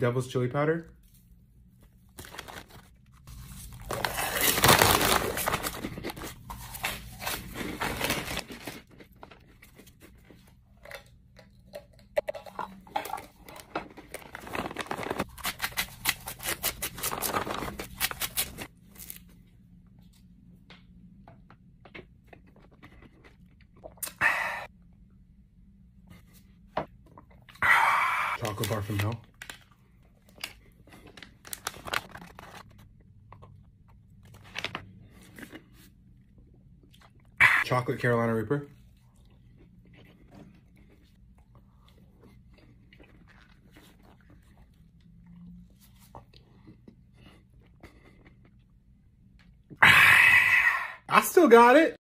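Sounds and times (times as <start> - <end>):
plastic snack bags rustling: 2.1 - 9.5, 13.2 - 15.4, 16.7 - 19.2, 28.4 - 29.7, 30.3 - 32.9
chewing crunchy snacks: 39.0 - 48.7.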